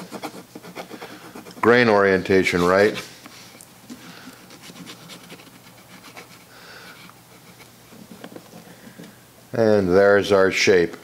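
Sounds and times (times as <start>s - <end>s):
pencil scratching on tape: 0.0s - 3.1s, 4.5s - 8.7s.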